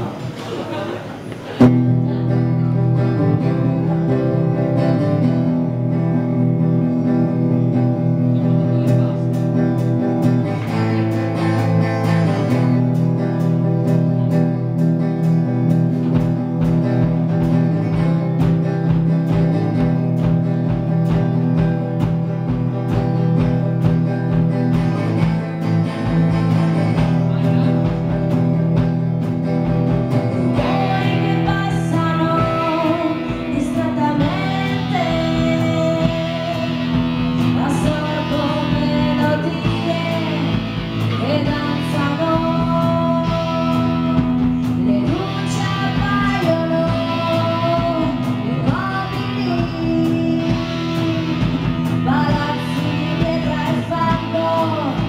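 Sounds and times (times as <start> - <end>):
electric guitar chords: 0.0 - 55.0
pulsing bass line: 1.6 - 55.0
woman singing: 30.2 - 55.0.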